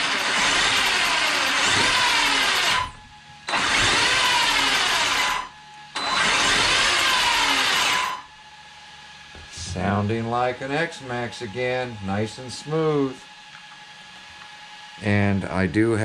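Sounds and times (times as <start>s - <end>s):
rc truck motor whining: 0.0s - 8.6s.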